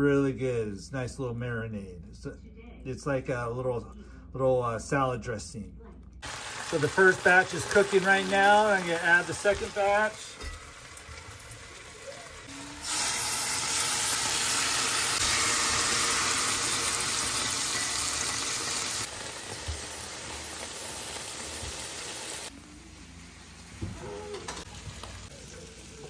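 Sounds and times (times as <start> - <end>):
chicken sizzling in oil: 6.2 - 26.0.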